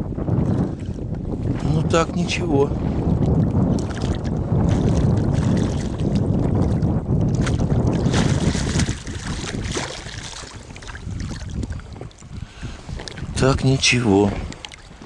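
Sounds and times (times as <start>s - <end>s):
wind rumbling on microphone: 0.0s - 15.0s
fish splashing at surface: 7.4s - 11.6s.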